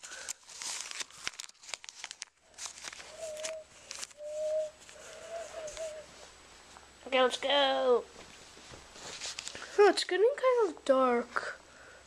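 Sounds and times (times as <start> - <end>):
paper money rustling: 0.0 - 6.0, 8.9 - 9.8.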